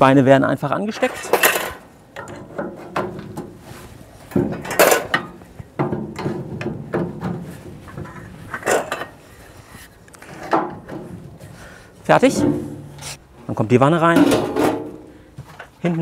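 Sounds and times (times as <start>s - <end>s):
metal rubbing and scraping: 0.9s - 15.1s
metal grill legs knocking: 1.0s - 3.6s, 4.3s - 9.2s, 10.4s - 11.4s, 12.1s - 13.2s, 14.0s - 15.1s.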